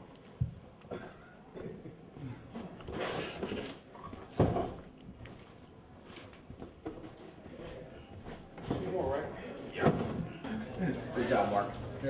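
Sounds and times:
boxes knocking and rustling: 0:02.5 - 0:10.4.

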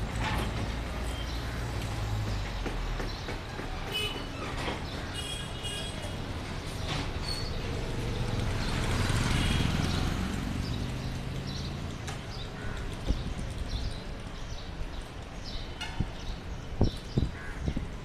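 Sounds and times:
street traffic: 0:00.0 - 0:18.0
vehicle passing: 0:07.6 - 0:12.4.

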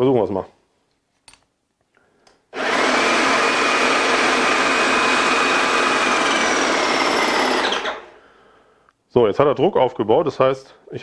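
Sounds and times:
paint sprayer pump whining: 0:02.6 - 0:08.2.

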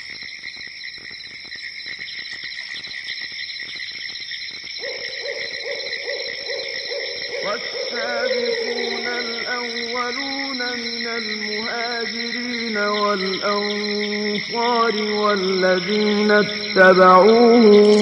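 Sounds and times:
low hooting call: 0:04.8 - 0:18.0
high chirring: 0:04.9 - 0:18.0.

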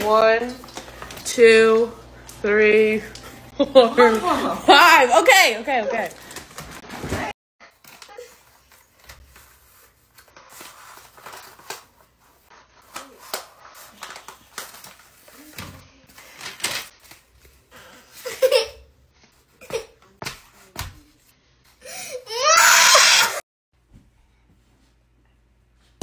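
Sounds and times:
wrapping paper rustling and crinkling: 0:05.8 - 0:17.6.

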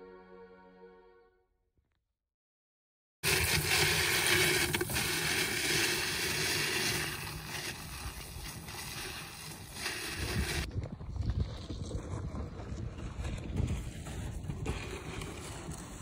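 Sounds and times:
plastic wheels rattling on gravel: 0:03.2 - 0:16.0.

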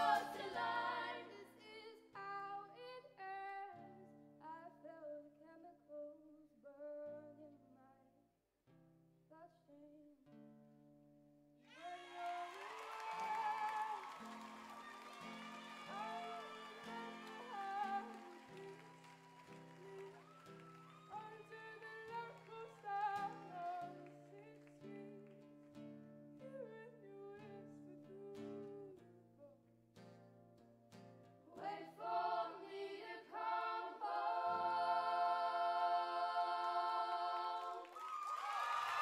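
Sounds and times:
choir singing: 0:00.0 - 0:01.8, 0:11.8 - 0:19.0, 0:31.5 - 0:38.0
acoustic guitar: 0:00.0 - 0:38.0
applause: 0:11.7 - 0:25.8, 0:37.6 - 0:39.0
person singing softly: 0:15.8 - 0:19.0, 0:19.6 - 0:25.5, 0:26.4 - 0:29.0.

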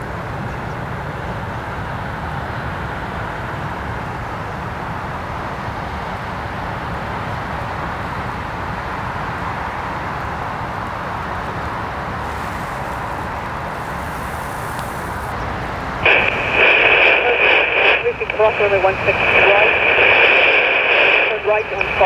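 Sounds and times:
outdoor rumble and hiss: 0:00.0 - 0:22.0
radio squelch tone: 0:12.2 - 0:15.4, 0:16.0 - 0:22.0
radio transmission: 0:12.2 - 0:22.0.

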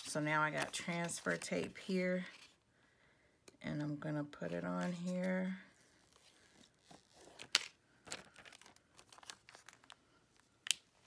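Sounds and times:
plastic tape crinkling: 0:06.1 - 0:11.0.

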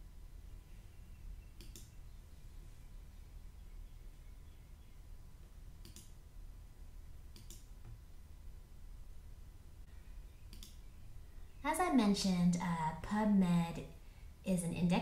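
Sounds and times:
faint low room hum: 0:00.0 - 0:15.0
computer mouse clicks: 0:01.6 - 0:02.0, 0:05.8 - 0:06.2, 0:07.3 - 0:08.0, 0:10.5 - 0:10.9.

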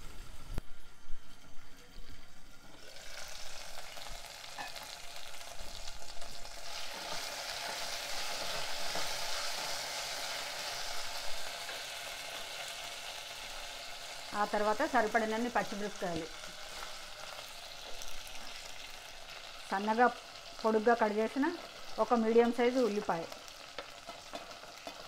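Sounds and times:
food sizzling in hot oil: 0:00.0 - 0:25.0.

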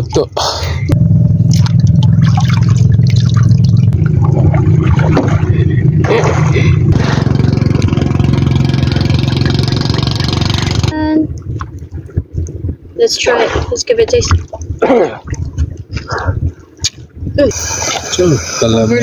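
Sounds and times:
engine droning: 0:00.7 - 0:11.0.

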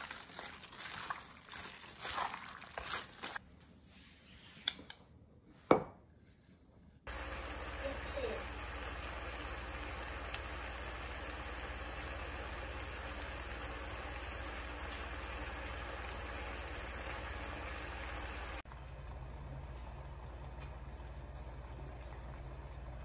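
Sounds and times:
pork sizzling in a frying pan: 0:07.1 - 0:18.6.

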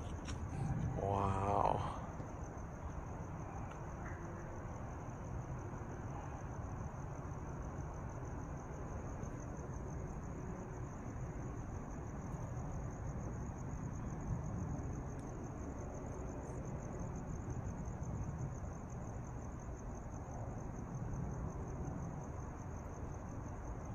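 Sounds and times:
low background rumble: 0:00.0 - 0:03.6
crickets chirping: 0:00.0 - 0:23.9.

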